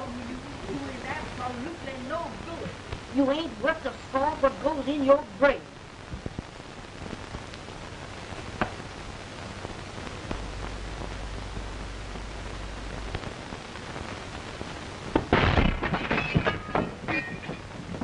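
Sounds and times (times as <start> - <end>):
film soundtrack hiss and crackle: 0.0 - 18.0
loud burst of noise: 5.7 - 18.0
low hum: 5.7 - 18.0.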